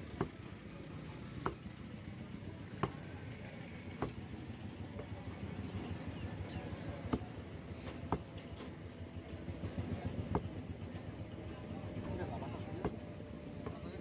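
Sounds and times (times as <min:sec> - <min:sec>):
cleaver chopping meat on wood: 0:00.1 - 0:00.4, 0:01.3 - 0:01.7, 0:02.7 - 0:03.1, 0:03.8 - 0:04.3, 0:07.1 - 0:07.4, 0:08.0 - 0:08.4, 0:10.2 - 0:10.6.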